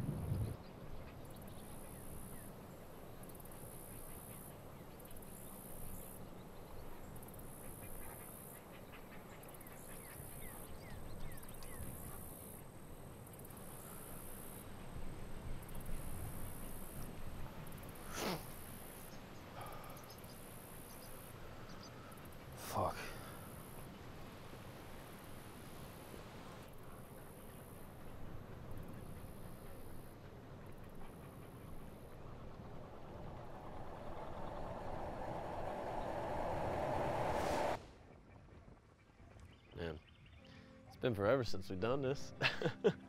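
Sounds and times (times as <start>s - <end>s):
high pulsing hiss: 24.6s - 37.8s.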